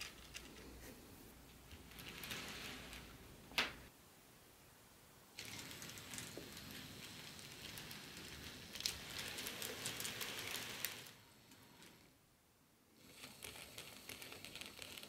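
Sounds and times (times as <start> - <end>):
model train rattling on track: 5.4 - 11.2.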